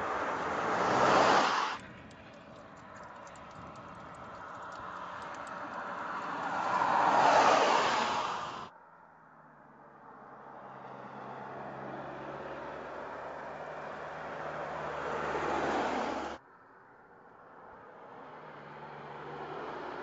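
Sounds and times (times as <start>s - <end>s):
car approaching: 0.0s - 8.7s, 10.7s - 16.4s.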